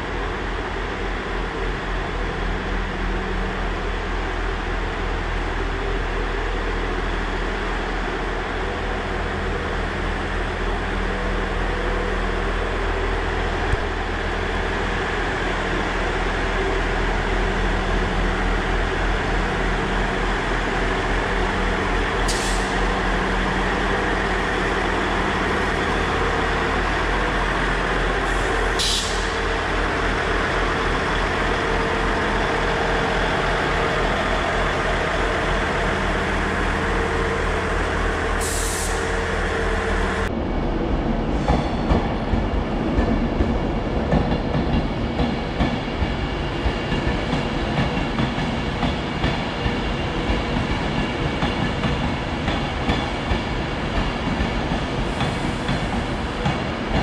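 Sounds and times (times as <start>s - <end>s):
diesel train engines idling: 0.0s - 57.0s
air brake hiss: 22.2s - 22.9s, 28.4s - 29.4s, 38.4s - 39.2s.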